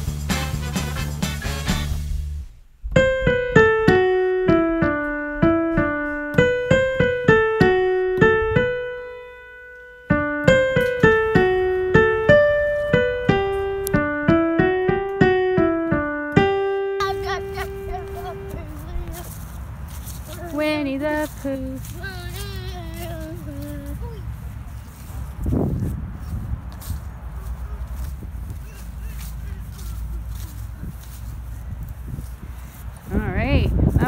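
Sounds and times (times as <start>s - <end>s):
piano keyboard melody: 2.8s - 24.2s.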